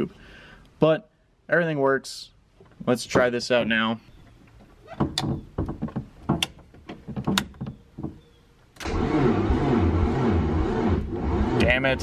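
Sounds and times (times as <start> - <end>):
handling clicks and knocks: 4.1 - 8.8
engine starter cranking: 8.8 - 12.0.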